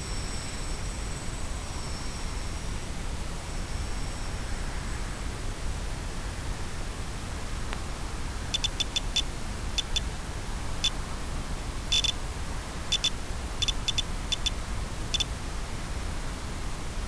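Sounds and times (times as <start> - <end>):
short high electronic beeps: 8.6 - 10.0, 11.9 - 12.2, 12.9 - 15.3.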